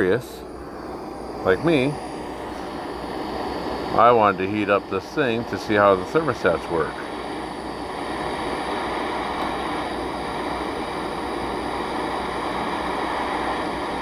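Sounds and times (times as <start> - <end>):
gas torch flame hissing: 0.0 - 14.0.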